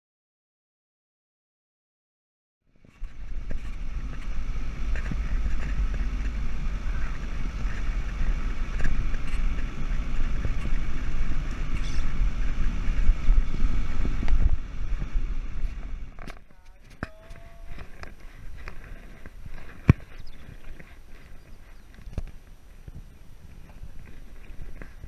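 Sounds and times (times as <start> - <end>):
vehicle driving on dirt track: 2.7 - 25.0
wind rumble on microphone: 2.7 - 25.0.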